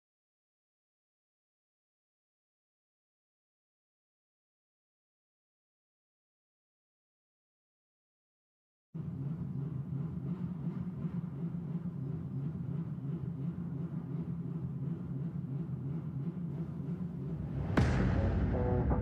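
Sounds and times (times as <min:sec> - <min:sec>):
low rumble: 0:14.1 - 0:19.0
music: 0:17.3 - 0:19.0
sudden sharp hit: 0:17.3 - 0:19.0.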